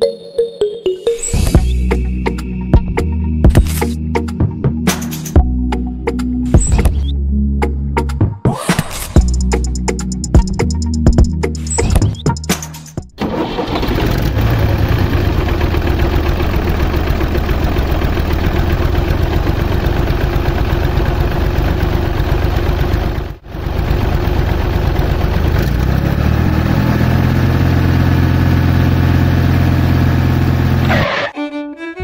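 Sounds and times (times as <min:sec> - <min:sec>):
tractor engine running: 0:09.2 - 0:31.3.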